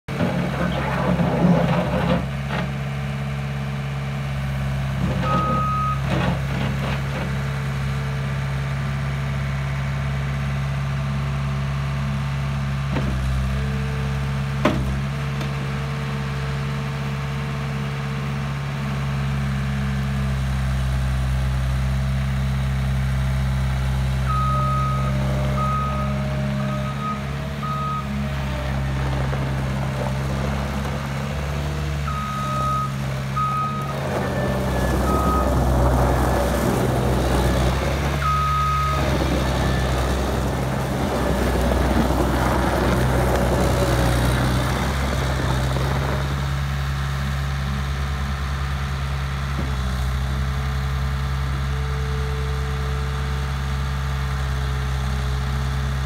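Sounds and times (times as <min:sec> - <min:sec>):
diesel engine running: 0:00.1 - 0:56.0
reversing alarm beeping: 0:05.2 - 0:06.0, 0:24.3 - 0:28.2, 0:32.0 - 0:40.2.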